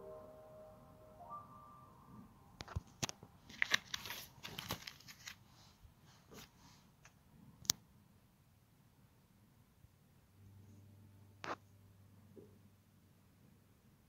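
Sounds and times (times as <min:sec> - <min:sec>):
plastic sleeves crinkling: 0:02.6 - 0:05.5.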